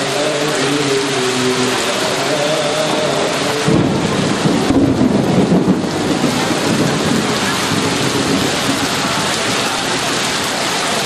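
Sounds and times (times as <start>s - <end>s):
heavy rain: 0.0s - 11.0s
thunder rumble: 2.9s - 11.0s.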